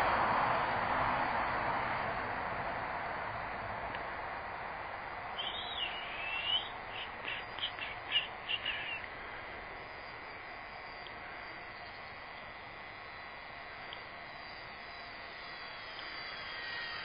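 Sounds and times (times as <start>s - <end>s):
steady hiss: 2.6s - 17.0s
bird whistling and chirping: 5.4s - 9.1s.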